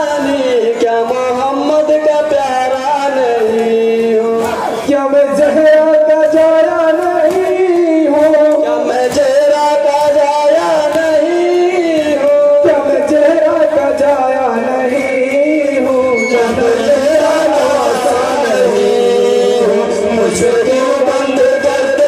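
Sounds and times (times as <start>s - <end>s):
sharp rhythmic strikes: 0.0s - 22.0s
person chanting mournfully: 9.6s - 22.0s.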